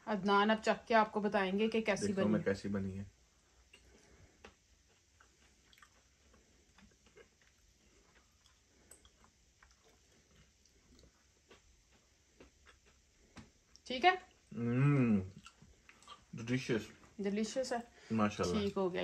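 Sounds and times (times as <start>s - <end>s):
faint chewing: 3.4s - 14.5s, 15.2s - 19.0s.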